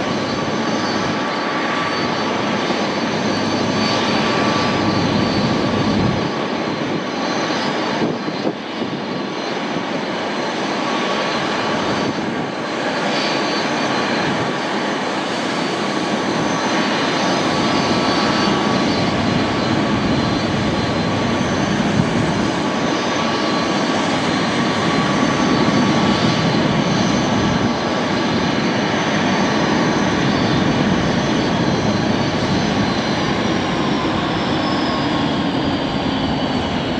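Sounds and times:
jet engines idling with whine: 0.0s - 36.9s.

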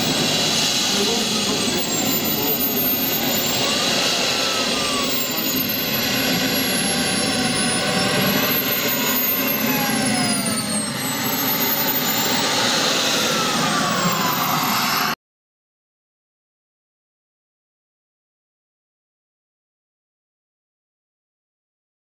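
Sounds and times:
jet turbine roaring and whining: 0.0s - 15.2s.

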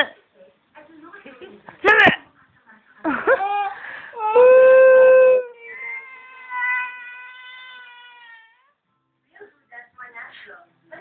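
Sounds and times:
toddler crying: 3.3s - 8.8s.

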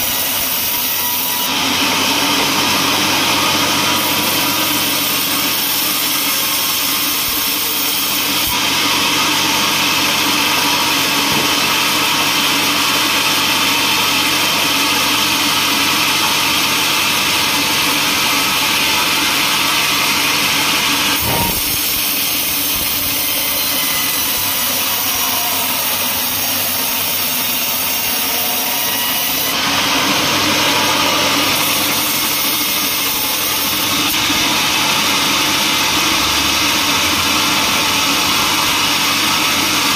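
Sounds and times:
band sawmill droning: 0.0s - 39.9s
saw blade hissing in wood: 21.1s - 29.6s
brief knock: 21.2s - 21.7s.

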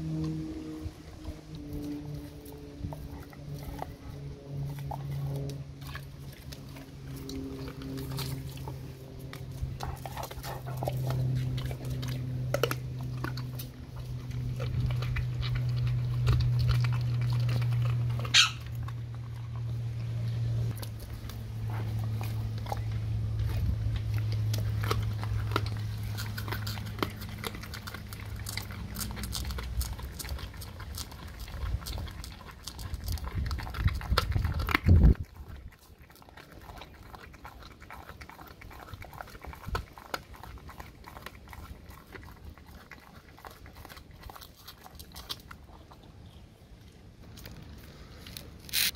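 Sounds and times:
dog growling low: 0.0s - 19.8s
dog chewing with wet crunching: 0.0s - 48.9s.

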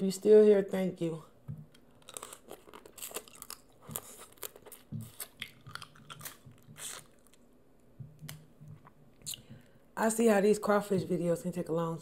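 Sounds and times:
chewing and sucking: 2.0s - 7.4s.

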